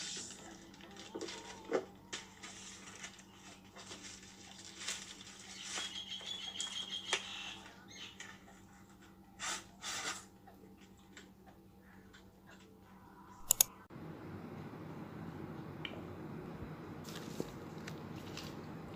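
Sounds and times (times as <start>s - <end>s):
plastic packaging rustling: 0.0s - 6.3s, 17.1s - 18.6s.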